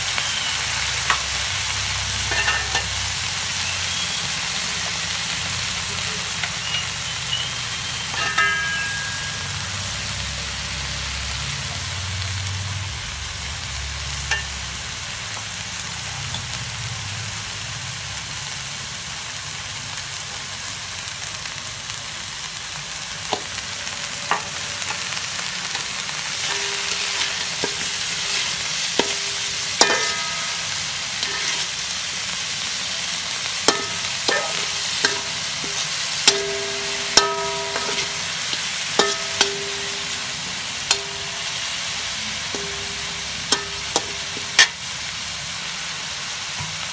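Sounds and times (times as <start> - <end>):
meat sizzling in oil: 0.0 - 46.9
metal spatula scraping wok: 1.0 - 4.5, 5.2 - 11.0, 23.2 - 45.2.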